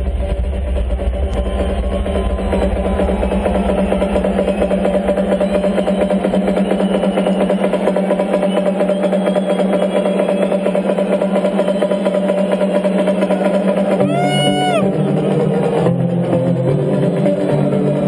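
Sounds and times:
loud electronic dance music: 1.5 - 15.9.

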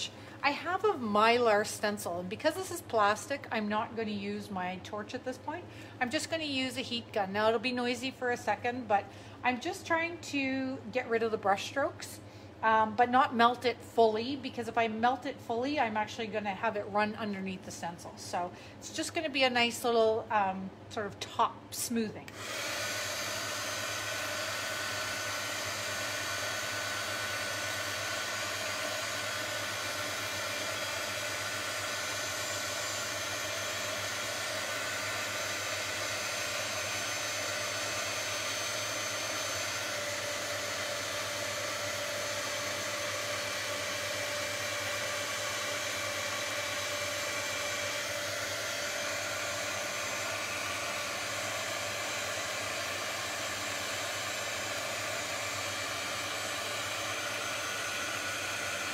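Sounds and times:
heat gun blowing: 22.3 - 58.9.

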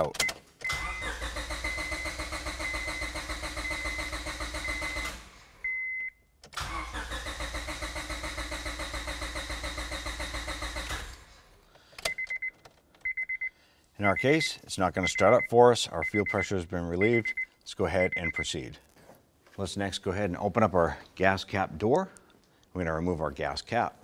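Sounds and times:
starter cranking engine: 0.6 - 5.4, 6.5 - 11.3
short electronic beeps: 15.0 - 18.5.

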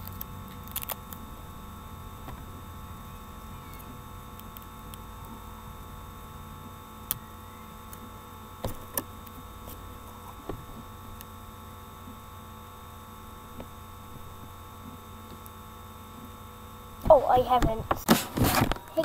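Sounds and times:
electronic hum of fixed tones: 0.0 - 19.0.

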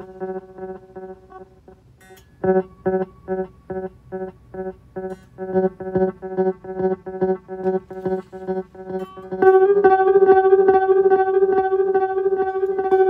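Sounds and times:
guitar note with delay echoes: 5.0 - 13.0.

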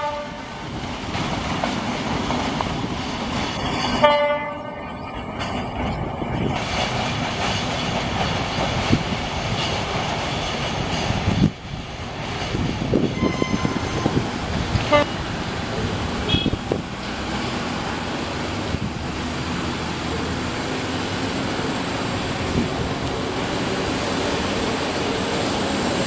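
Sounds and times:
street traffic noise: 0.0 - 26.0
short horn toots: 13.2 - 14.2.

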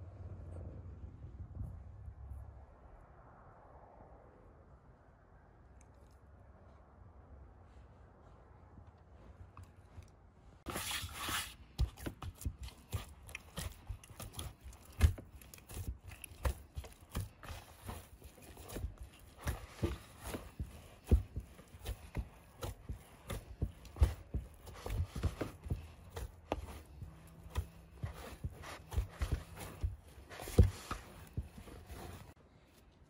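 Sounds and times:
dough being kneaded by hand: 10.2 - 32.7.

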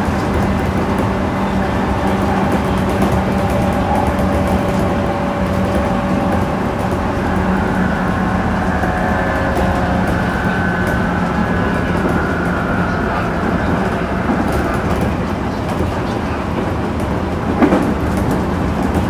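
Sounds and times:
electric train equipment hum: 0.0 - 19.0
thin high whine: 2.2 - 15.6.

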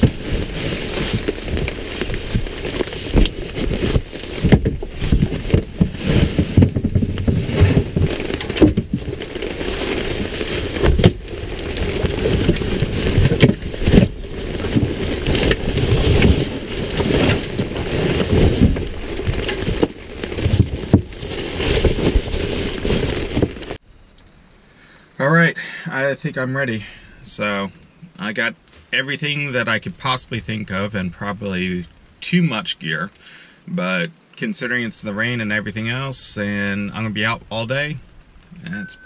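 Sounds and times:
fabric rustling and scraping: 0.0 - 23.8
knocks and thumps: 0.0 - 23.8.

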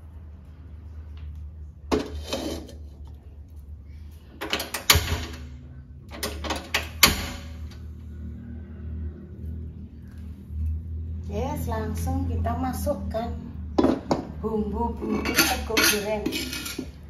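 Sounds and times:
wok scraping and clanking on stove: 1.9 - 3.1, 15.0 - 17.0.

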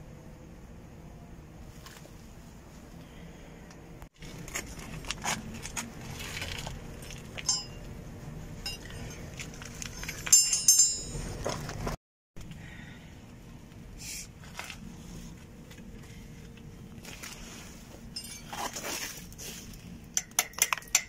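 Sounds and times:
metallic clicks and clinks: 8.6 - 11.3, 20.1 - 21.0.

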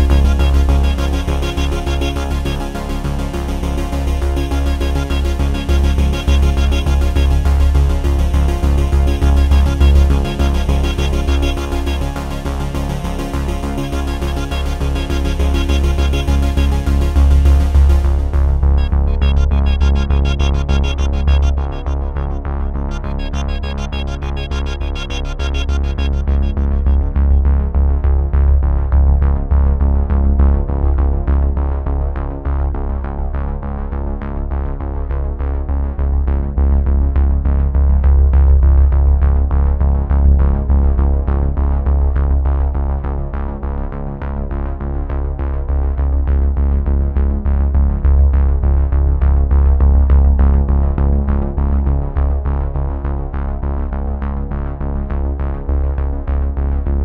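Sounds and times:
synthesizer music with beat: 0.0 - 28.0.

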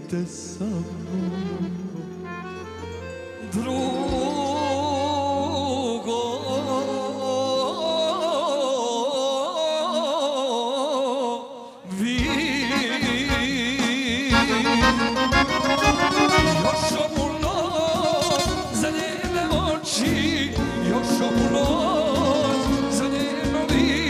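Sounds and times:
ornamented melody over held chords: 0.0 - 8.7, 12.2 - 24.0
band playing with drum beat: 12.2 - 24.0.

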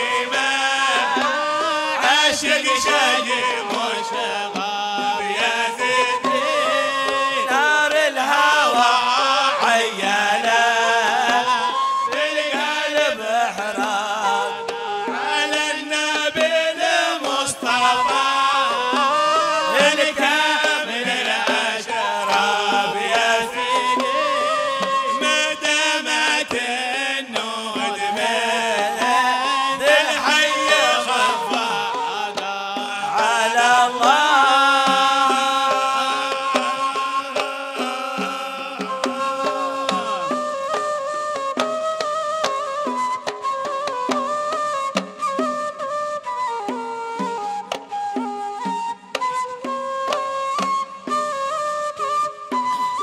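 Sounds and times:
men chanting: 0.0 - 40.6
hand drums beating: 0.0 - 45.7.

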